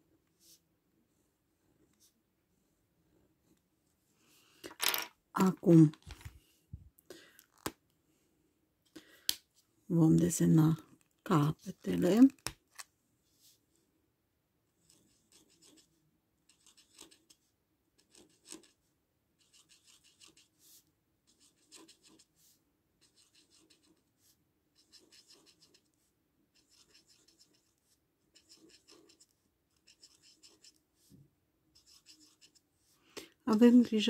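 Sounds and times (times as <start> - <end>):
marker scratching on paper: 14.8 - 18.8, 19.4 - 33.0.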